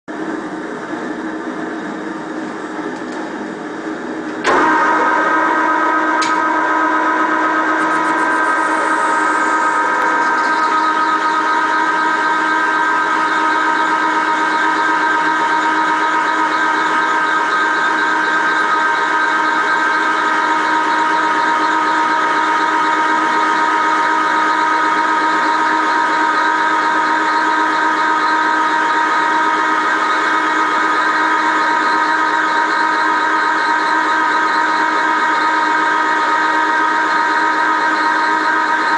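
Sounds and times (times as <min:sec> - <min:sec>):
gear whine: 0:04.3 - 0:38.9
metal lathe humming: 0:04.5 - 0:21.5.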